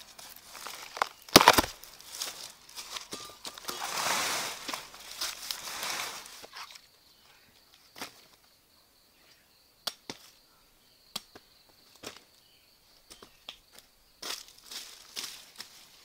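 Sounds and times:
plant stem snapping: 0:01.0 - 0:01.8.

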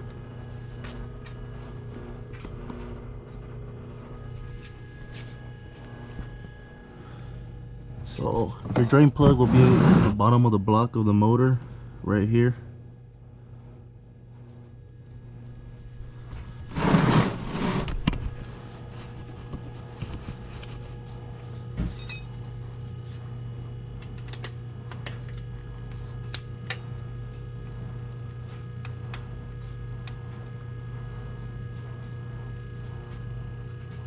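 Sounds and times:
metal tools clinking on engine: 0:21.9 - 0:22.3.

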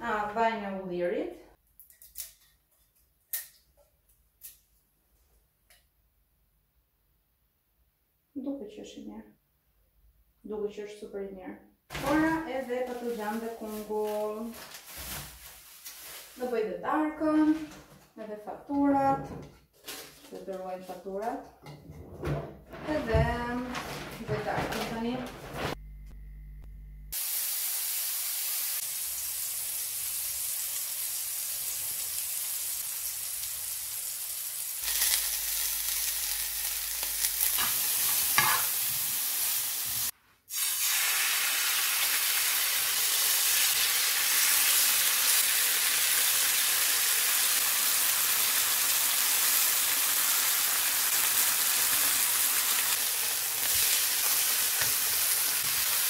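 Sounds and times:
chicken frying in a pan: 0:27.1 - 0:56.0.

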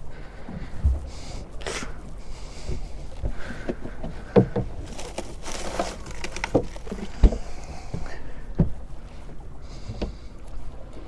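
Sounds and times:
water lapping against boat hull: 0:00.0 - 0:11.0
fishing tackle rustling: 0:01.5 - 0:08.9.

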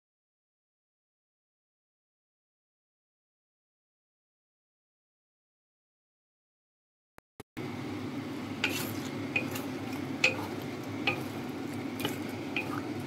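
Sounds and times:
food sizzling: 0:07.6 - 0:13.0
spatula scraping a wok: 0:08.6 - 0:13.0.

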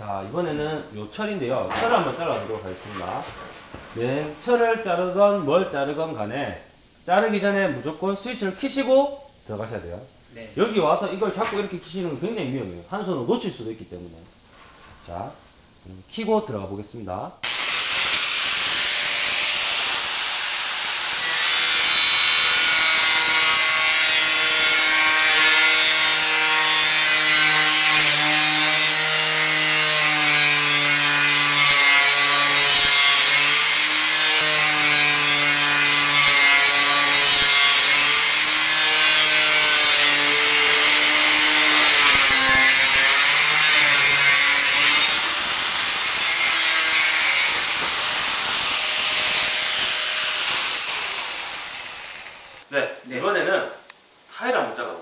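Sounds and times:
angle grinder cutting steel: 0:17.4 - 0:52.7.

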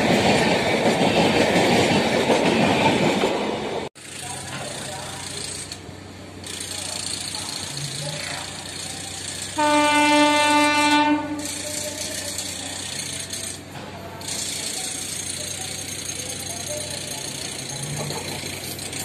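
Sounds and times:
train horn blast: 0:09.6 - 0:11.5.

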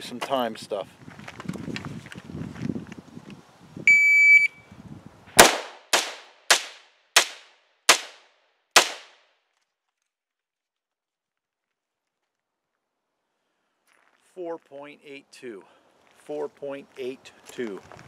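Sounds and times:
shot timer beep: 0:03.9 - 0:04.6
rifle shots: 0:05.4 - 0:08.2, 0:08.8 - 0:09.2.

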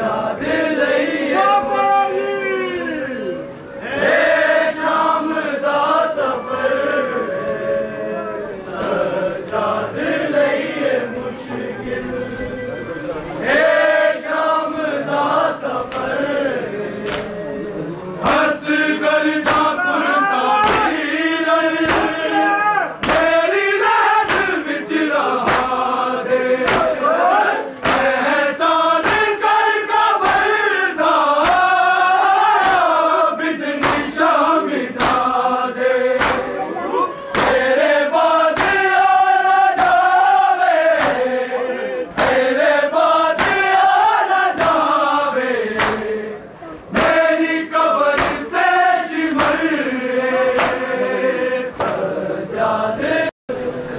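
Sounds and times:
men chanting a lament: 0:00.0 - 0:12.4, 0:13.4 - 0:53.9
chest slaps: 0:17.0 - 0:17.4, 0:20.6 - 0:21.0, 0:21.8 - 0:22.2, 0:23.0 - 0:23.3, 0:24.2 - 0:24.6, 0:25.4 - 0:25.8, 0:26.6 - 0:27.0, 0:27.8 - 0:28.2, 0:30.2 - 0:30.5, 0:33.8 - 0:34.1, 0:35.0 - 0:35.3, 0:36.2 - 0:36.6, 0:37.4 - 0:37.6, 0:38.6 - 0:38.8, 0:39.8 - 0:40.1, 0:41.0 - 0:41.3, 0:42.1 - 0:42.4, 0:43.4 - 0:43.7, 0:45.8 - 0:46.1, 0:48.1 - 0:48.5, 0:49.3 - 0:49.6, 0:50.5 - 0:50.9.

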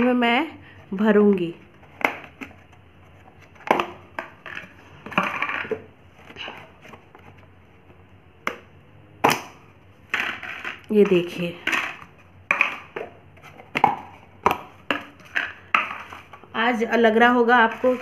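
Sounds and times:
plastic tubs clacking on tile: 0:03.4 - 0:07.0, 0:08.5 - 0:16.6.

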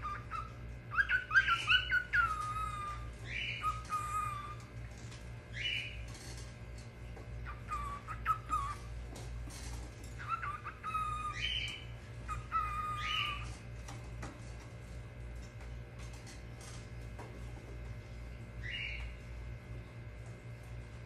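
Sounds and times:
cockatiel whistling: 0:00.0 - 0:04.5.

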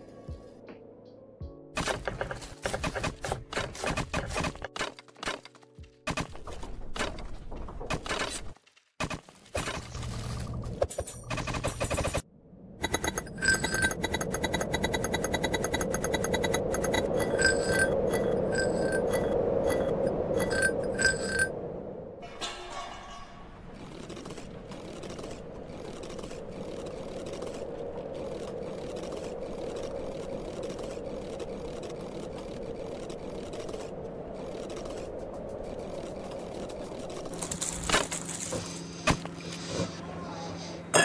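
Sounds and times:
fast clatter: 0:12.8 - 0:21.5
sharp clicks and clinks: 0:12.8 - 0:21.5
short ringing tones: 0:12.8 - 0:21.5.

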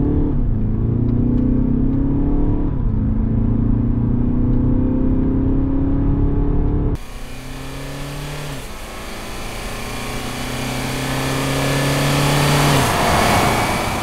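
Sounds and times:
car driving past at full throttle: 0:07.0 - 0:14.0.

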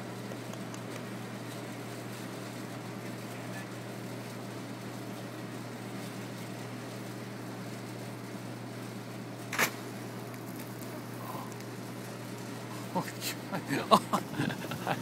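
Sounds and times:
air conditioning hum: 0:00.0 - 0:15.0
constant hiss: 0:00.0 - 0:15.0.

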